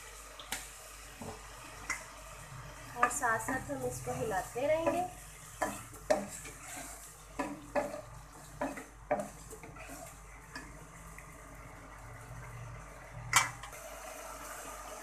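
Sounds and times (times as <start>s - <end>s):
faint sizzle: 0.0s - 15.0s
spatula scraping a pot: 3.0s - 10.7s.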